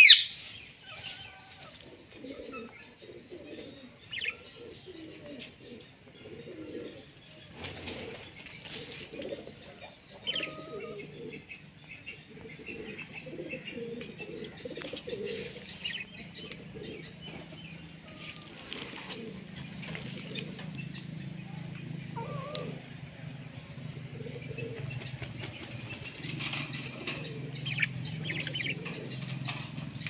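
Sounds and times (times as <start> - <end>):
budgerigars chirping: 0.0 - 0.3, 10.2 - 13.7, 14.6 - 18.5, 24.6 - 29.7
lower repeated bird calls: 0.0 - 8.2, 10.1 - 30.0
wings fluttering: 7.5 - 9.1, 18.1 - 20.9.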